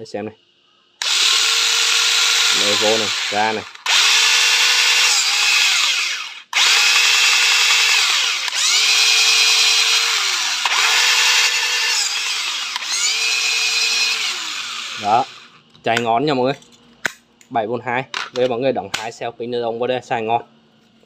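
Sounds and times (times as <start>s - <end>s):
electric tool motor whine: 1.0s - 15.6s.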